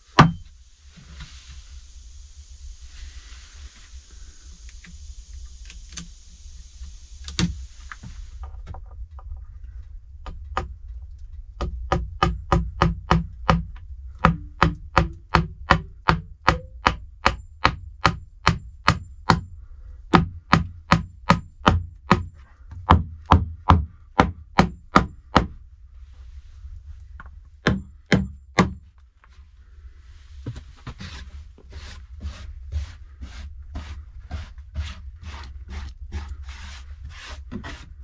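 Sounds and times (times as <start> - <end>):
hammer blows on wood: 11.6 - 19.5
scraping strokes on wood: 30.2 - 38.0.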